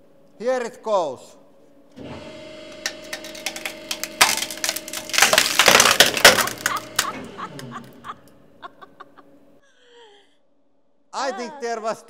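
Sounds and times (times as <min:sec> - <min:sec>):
wood cracking and splintering: 0:02.7 - 0:08.0
steel plates tearing loose: 0:02.7 - 0:08.4.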